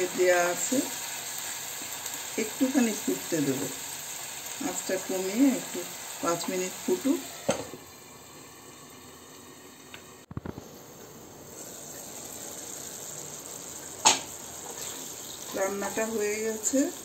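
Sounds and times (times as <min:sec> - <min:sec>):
curry simmering and sizzling: 0:00.0 - 0:17.0.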